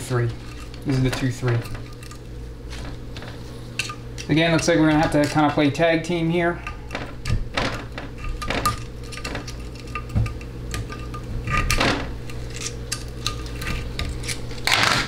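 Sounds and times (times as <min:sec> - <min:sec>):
metal tools clicking and scraping: 0:08.2 - 0:14.8.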